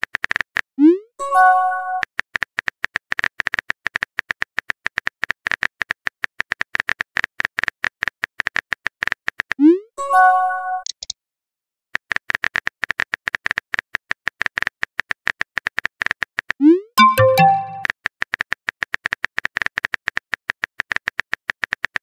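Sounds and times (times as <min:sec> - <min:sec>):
keyboard typing clicks: 0:10.8 - 0:11.1, 0:16.6 - 0:17.9
message chime: 0:16.7 - 0:17.9.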